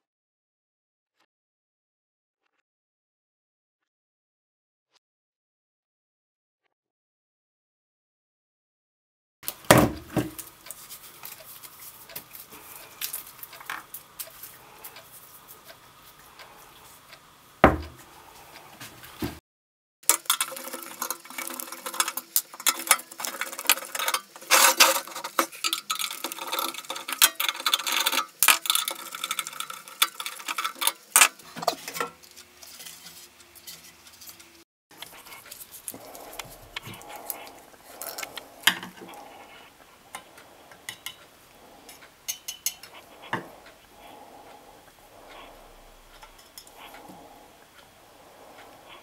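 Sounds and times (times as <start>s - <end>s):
metal clinks and taps: 41.9s - 43.5s.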